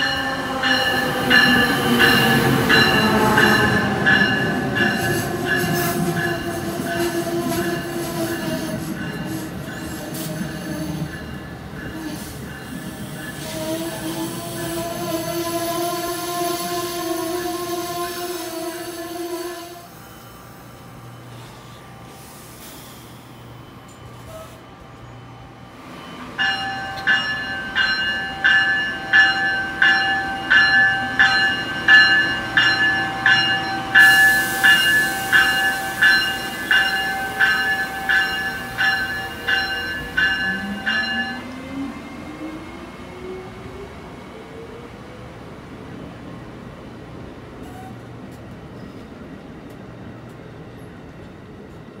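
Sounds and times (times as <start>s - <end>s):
locomotive bell ringing: 0.0s - 13.7s, 23.3s - 41.8s
train rumbling past: 0.0s - 52.0s.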